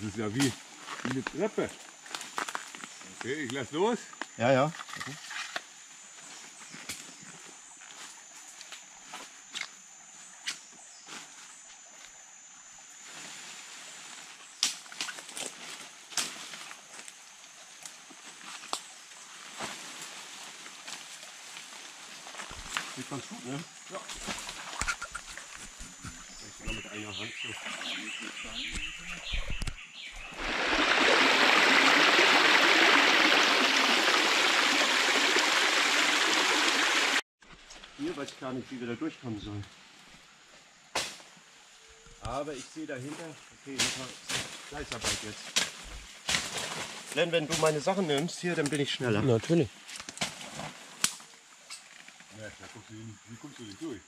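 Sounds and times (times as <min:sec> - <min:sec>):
high insect drone: 0:00.0 - 0:37.2, 0:37.9 - 0:50.0
stream splashing over rocks: 0:30.1 - 0:37.2.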